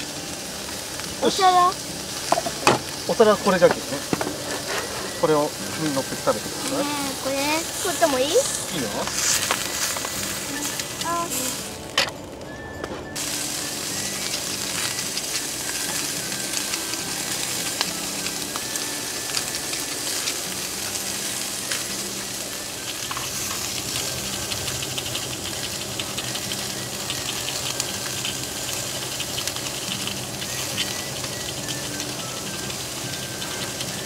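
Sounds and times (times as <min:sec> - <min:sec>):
meat sizzling in a skillet: 0:00.0 - 0:12.0, 0:13.1 - 0:34.0
fat crackling and popping: 0:00.0 - 0:34.0.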